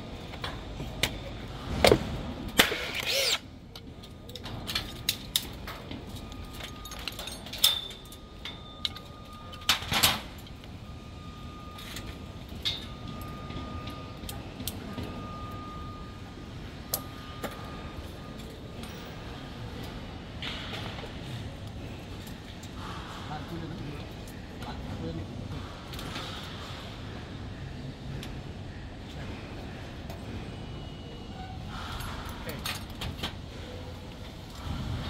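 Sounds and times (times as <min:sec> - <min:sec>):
steady background hum: 0:00.0 - 0:35.0
metal clinks and knocks: 0:06.4 - 0:09.6.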